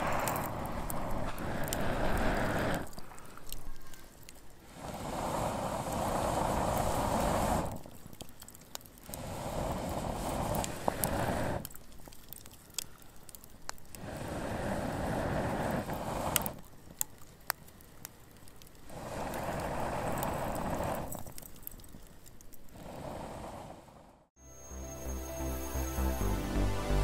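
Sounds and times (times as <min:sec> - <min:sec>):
rushing noise: 0:00.0 - 0:02.8
campfire crackling and popping: 0:00.0 - 0:23.8.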